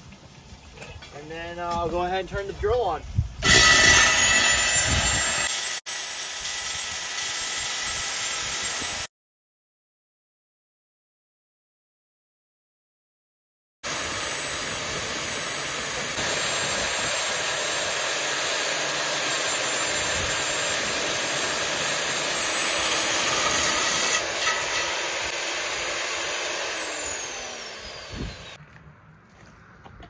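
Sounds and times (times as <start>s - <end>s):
core drill grinding concrete: 3.4s - 9.1s, 13.8s - 28.6s.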